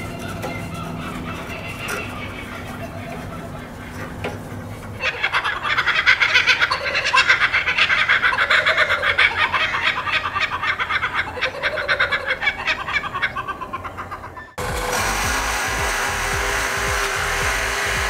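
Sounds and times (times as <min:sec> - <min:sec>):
kookaburra cackling laugh: 0:00.0 - 0:15.2
drill press motor humming: 0:14.6 - 0:18.0.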